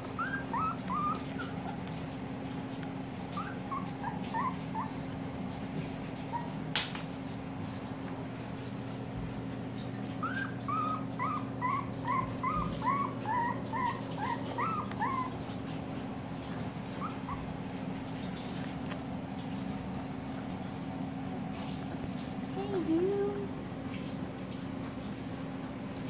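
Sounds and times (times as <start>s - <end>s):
puppy whimpering: 0.0s - 5.3s, 6.1s - 6.6s, 10.1s - 18.8s, 21.5s - 26.0s.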